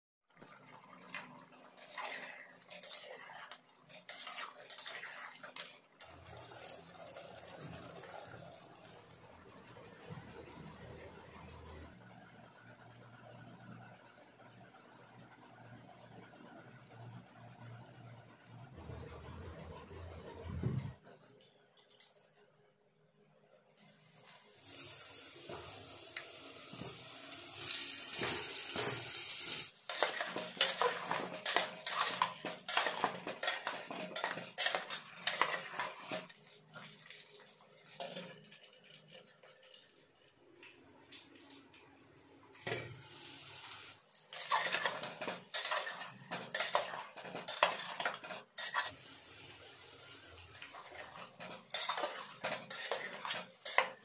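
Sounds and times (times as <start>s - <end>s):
spatula scraping metal pot: 1.8s - 5.8s, 28.1s - 36.4s, 44.3s - 49.0s, 50.6s - 54.0s
potatoes sizzling in oil: 24.0s - 37.3s, 42.7s - 54.0s.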